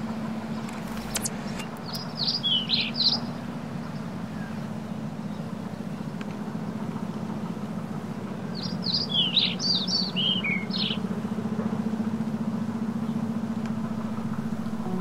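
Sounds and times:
steady low hum: 0.0 - 15.0
songbird singing: 0.6 - 6.2, 8.5 - 11.1, 13.0 - 15.0.

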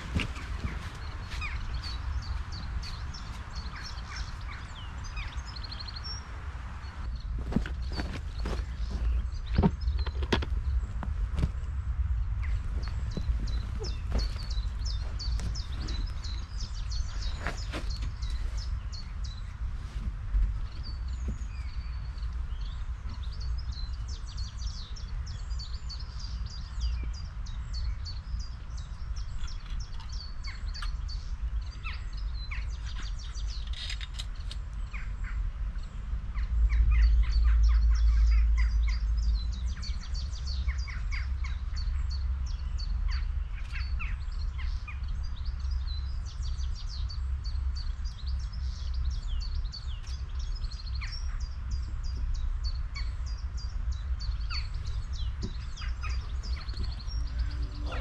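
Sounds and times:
birds chirping: 0.0 - 58.0
low rumble: 51.4 - 58.0.

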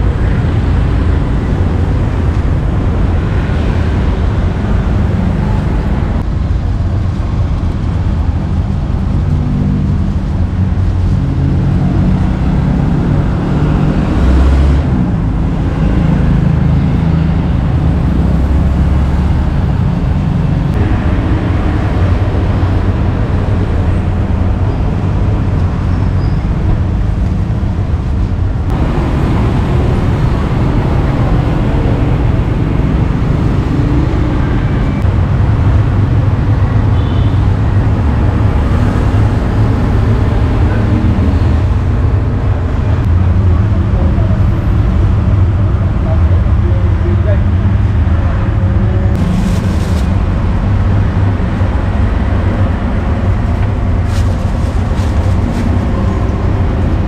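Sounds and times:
cars and motorbikes passing: 0.0 - 57.0.

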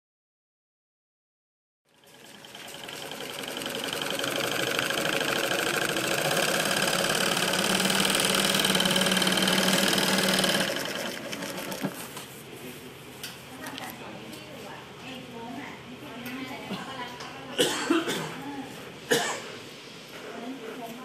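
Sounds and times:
sewing machine stitching clatter: 1.9 - 12.2.

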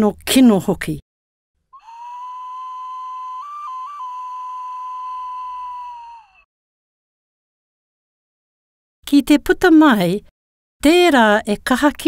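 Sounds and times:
breathy flute note: 1.8 - 6.5.

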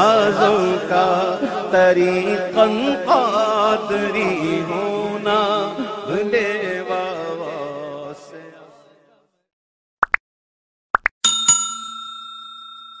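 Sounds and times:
chanted devotional vocal: 0.0 - 9.2
bell-like ding: 11.2 - 13.0.

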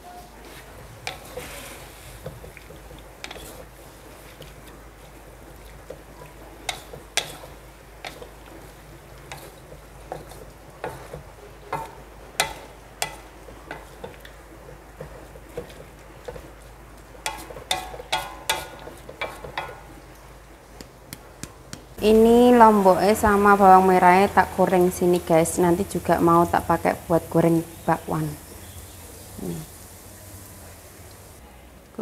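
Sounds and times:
cooking hiss: 0.0 - 31.4
metal spatula scraping a pan: 0.4 - 16.6, 17.2 - 19.9.

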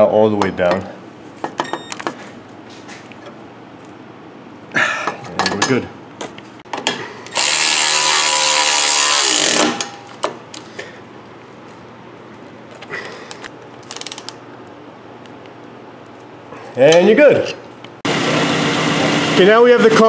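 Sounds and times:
electric ratchet whining: 7.4 - 9.9
ratchet clicks: 13.4 - 14.4.

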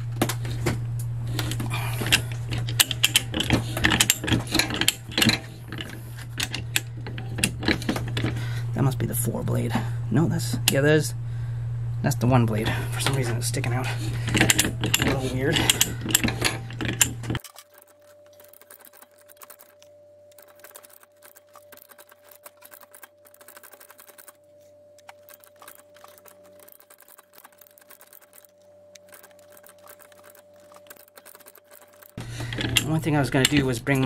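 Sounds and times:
faint hum: 0.0 - 34.0
pipe threader ratchet clicking: 1.4 - 8.4, 12.9 - 19.8, 25.0 - 34.0.

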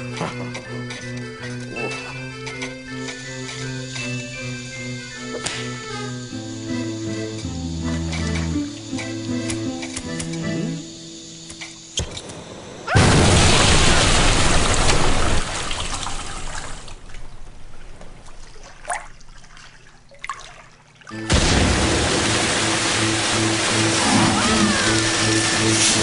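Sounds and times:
music: 0.0 - 11.8, 21.1 - 26.0
wall bursting open: 12.9 - 15.6
pressurised water jets spraying: 21.3 - 26.0
rushing hiss of water: 21.6 - 26.0.

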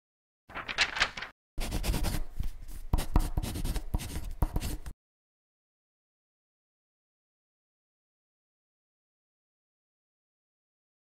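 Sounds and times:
drawing tool scratching paper: 1.6 - 4.9.

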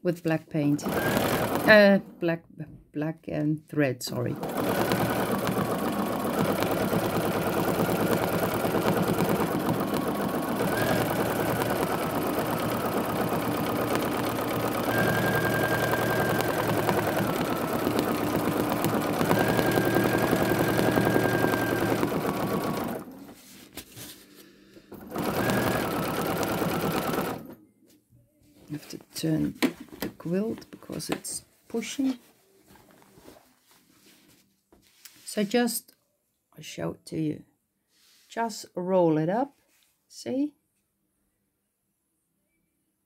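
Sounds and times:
sewing machine stitching: 0.8 - 2.1, 4.2 - 23.4, 24.9 - 27.6.

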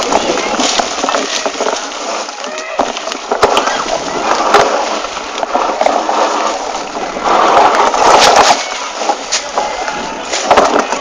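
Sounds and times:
brush and branches rustling: 0.0 - 11.0
bike knocks and rattles: 2.5 - 11.0.

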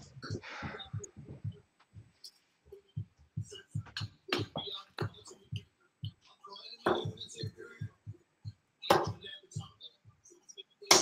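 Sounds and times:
soft low thumps: 0.0 - 2.2.

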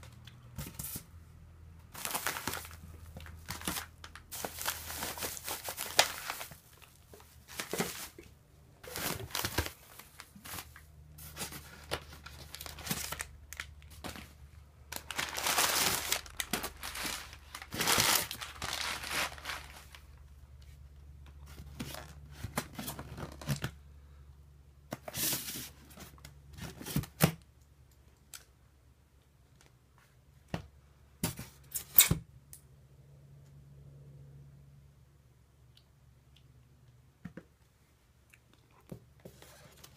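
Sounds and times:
faint low hum: 0.0 - 39.9
paper and plastic crinkling: 1.9 - 20.3.

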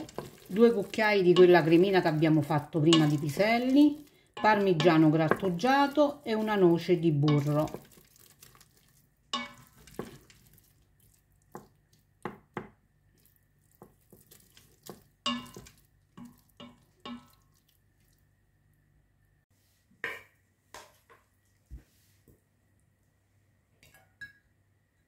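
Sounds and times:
wooden spoon knocking and scraping pot: 0.0 - 12.8, 13.8 - 17.6.

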